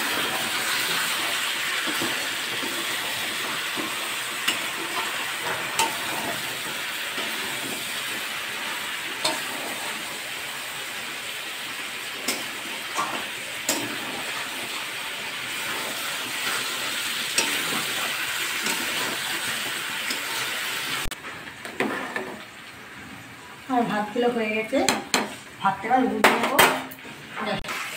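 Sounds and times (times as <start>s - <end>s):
food sizzling in a pan: 0.0s - 27.9s
metal spatula clinking on pan: 9.2s - 9.4s.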